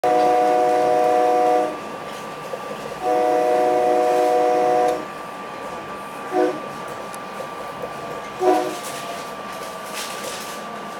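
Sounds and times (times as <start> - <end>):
train air horn blasts: 0.0 - 1.8, 3.0 - 5.1, 6.3 - 6.7, 8.4 - 9.0
train engine hum: 0.0 - 10.9.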